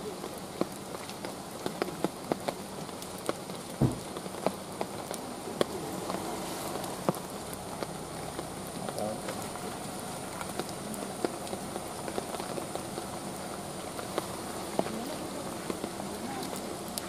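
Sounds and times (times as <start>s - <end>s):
drops ticking on leaves: 0.0s - 17.0s
rain falling in forest: 0.0s - 17.0s
low thump: 3.8s - 4.1s.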